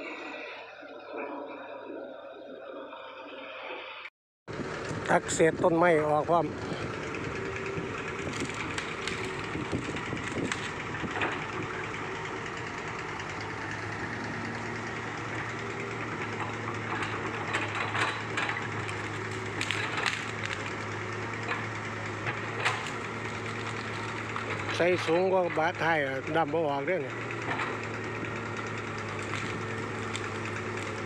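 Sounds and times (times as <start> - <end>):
excavator engine running: 0.0 - 3.3, 4.5 - 31.0
wood crackling and snapping: 6.6 - 25.1, 27.1 - 31.0.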